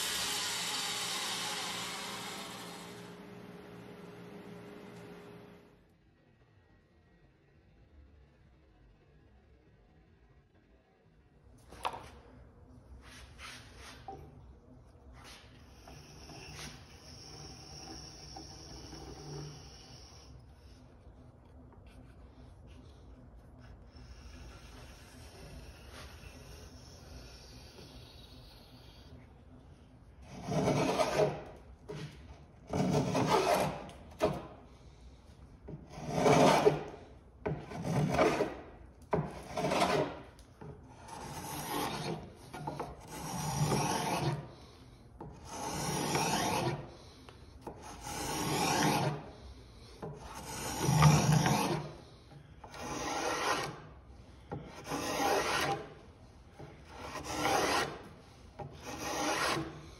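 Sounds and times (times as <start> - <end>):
spokeshave cutting wood: 0.0 - 3.6, 15.2 - 20.9, 30.2 - 34.6, 35.7 - 59.9.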